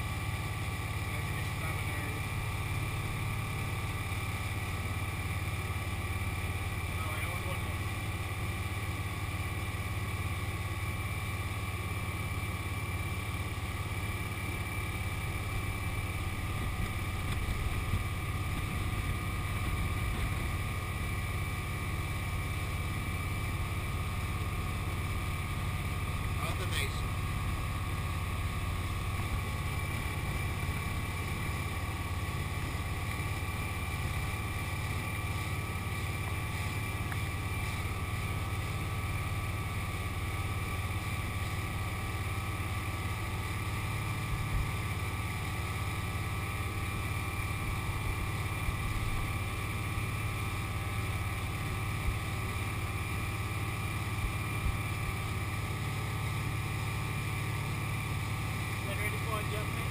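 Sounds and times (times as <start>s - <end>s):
motorboat engine droning: 0.0s - 59.9s.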